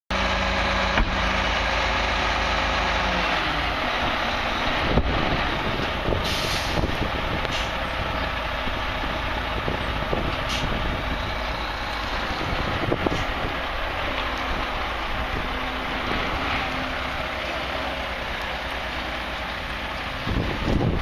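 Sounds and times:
truck diesel engine: 0.1 - 21.0
brief hiss: 6.2 - 6.8.

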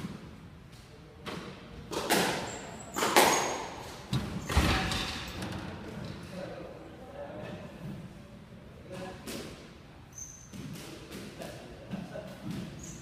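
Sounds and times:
squash ball hitting rackets and walls: 1.2 - 6.2, 10.4 - 13.0.

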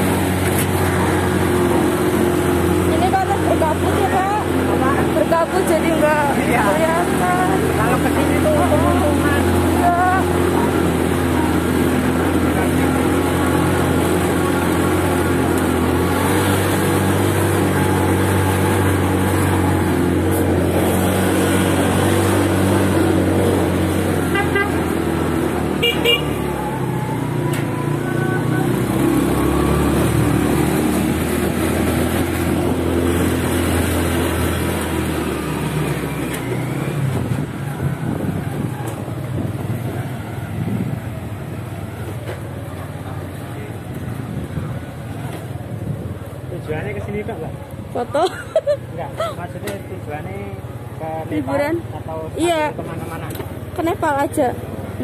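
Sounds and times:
motorcycle horn toots: 24.2 - 25.0, 25.8 - 26.6.

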